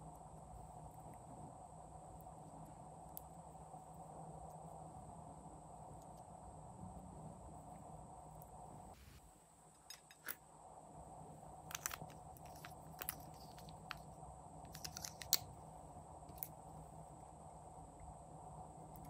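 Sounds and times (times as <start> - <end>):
faint steady hum: 0.0 - 19.0
plastic markers clicking and tapping: 14.7 - 15.5.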